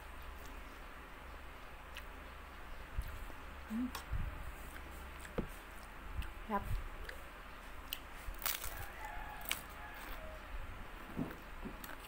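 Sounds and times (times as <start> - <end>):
rooster crowing: 8.6 - 10.7.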